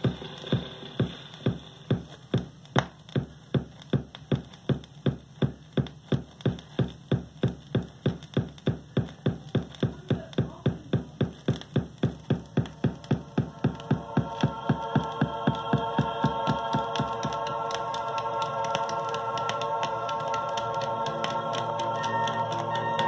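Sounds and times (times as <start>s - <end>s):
music with strong beat: 0.0s - 23.0s.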